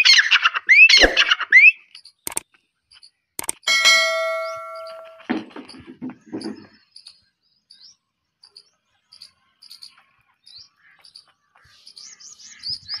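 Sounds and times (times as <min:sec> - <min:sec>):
high-pitched bird chirps: 0:00.0 - 0:02.4.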